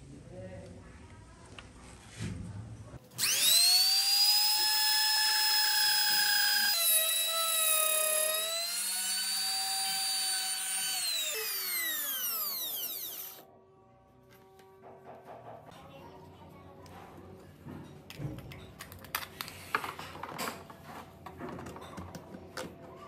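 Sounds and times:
router bit cutting wood: 3.2s - 13.4s
router motor whining: 3.2s - 13.4s.

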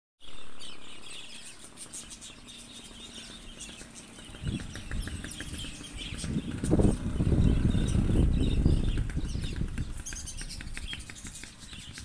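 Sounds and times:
low microphone rumble: 4.2s - 11.0s.

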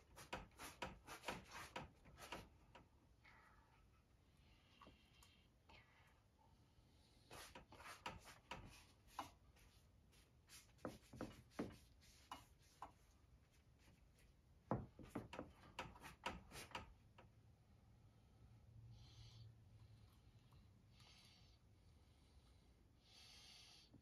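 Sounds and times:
paint rubbing on canvas: 0.0s - 2.5s, 7.2s - 16.8s.

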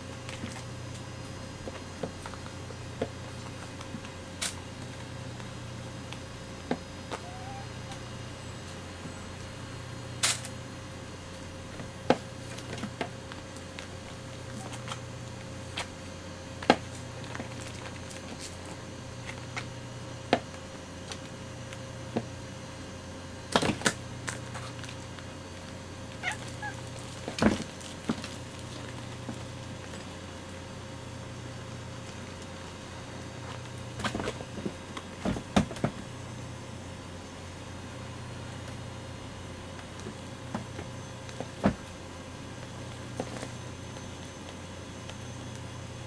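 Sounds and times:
cat meowing: 7.2s - 8.0s, 26.2s - 26.9s.

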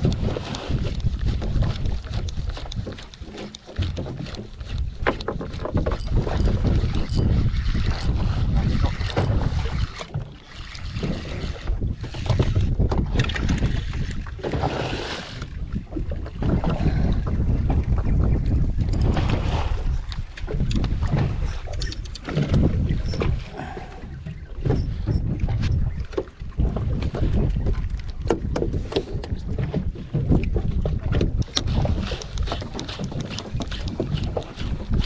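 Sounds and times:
small clicks and knocks: 0.0s - 7.2s
water against boat hull: 0.0s - 35.0s
wind buffeting microphone: 0.0s - 35.0s.

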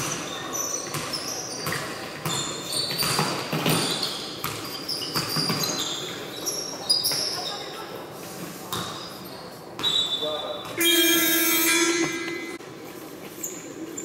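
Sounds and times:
basketball bouncing on court: 0.0s - 6.2s
sneaker squeaks: 0.0s - 14.0s.

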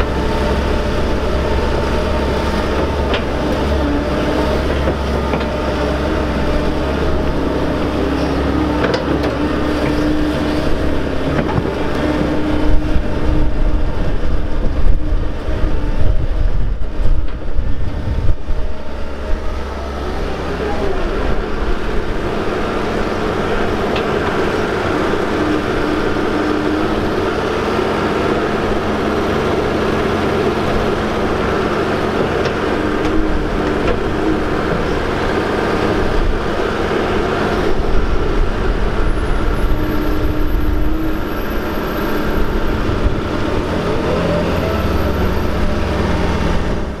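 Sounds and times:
excavator diesel engine running: 0.0s - 47.0s.

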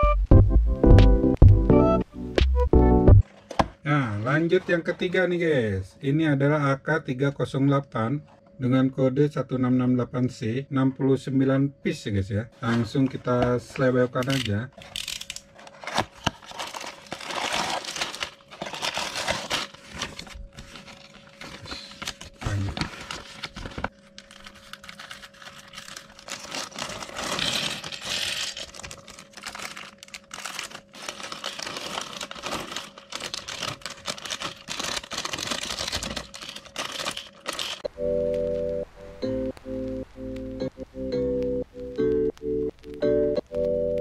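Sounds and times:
plastic bags crinkling: 14.2s - 37.9s
cardboard box rustling: 15.6s - 37.8s.

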